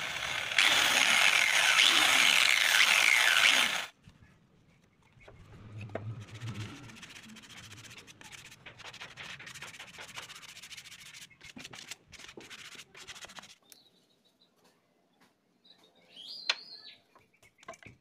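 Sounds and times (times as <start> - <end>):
sandpaper rubbing on wood: 6.2 - 13.6.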